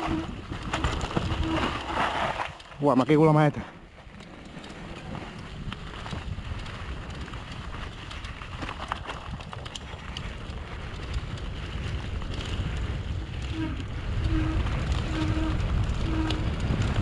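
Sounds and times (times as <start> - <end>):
bike clicks and rattles: 0.0 - 17.0
tyres rolling over dirt: 0.0 - 17.0
wind rushing over microphone: 3.8 - 17.0.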